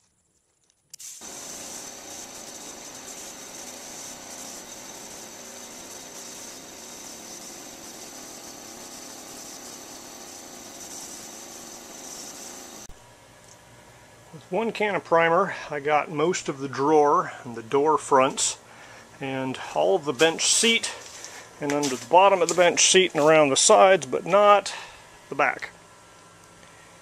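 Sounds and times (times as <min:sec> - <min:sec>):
spray gun hissing: 0:01.0 - 0:12.9
air compressor running: 0:01.0 - 0:13.0.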